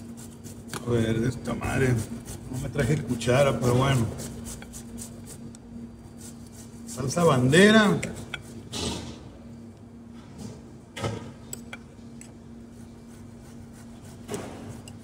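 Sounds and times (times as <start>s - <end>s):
steady low hum: 0.0s - 15.0s
utensil scrapes and knocks: 13.8s - 15.0s.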